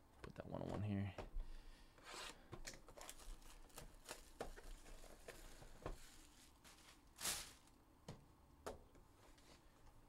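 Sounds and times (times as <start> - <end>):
packaging rustle: 2.6 - 7.8.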